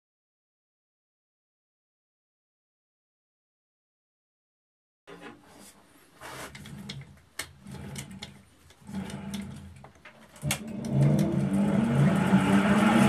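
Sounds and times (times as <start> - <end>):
lathe motor humming: 6.5 - 13.0.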